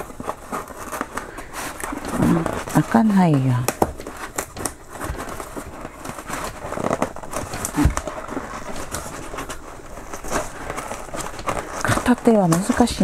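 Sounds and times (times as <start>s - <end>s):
styrofoam squeaking and creaking: 0.0s - 13.0s
foam edges crackling: 0.8s - 4.9s, 6.8s - 13.0s.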